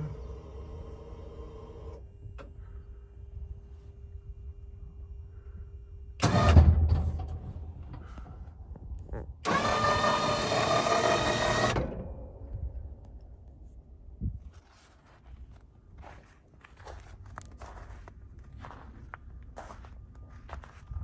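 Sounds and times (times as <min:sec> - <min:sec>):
electric winch motor running: 0:00.0 - 0:02.1, 0:09.4 - 0:12.0.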